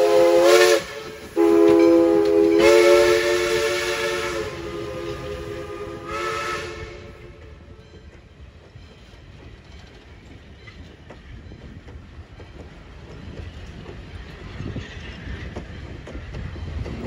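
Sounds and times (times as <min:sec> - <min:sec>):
train coaches rumbling: 0:00.0 - 0:17.0
wheels clicking over rail joints: 0:07.2 - 0:17.0.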